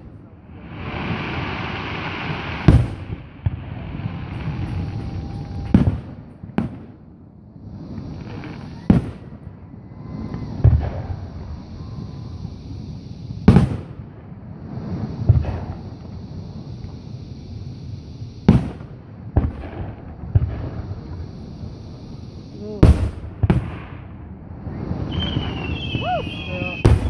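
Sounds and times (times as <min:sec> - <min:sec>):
firework shells bursting: 0:25.0 - 0:27.0.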